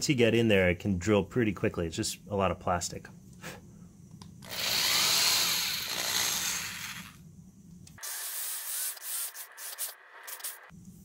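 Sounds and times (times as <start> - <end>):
drill boring into plastic: 4.4 - 7.2.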